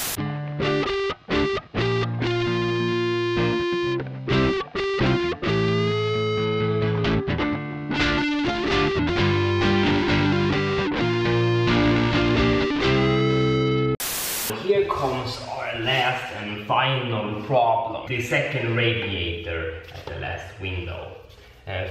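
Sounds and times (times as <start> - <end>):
electric guitar music: 0.0 - 14.0.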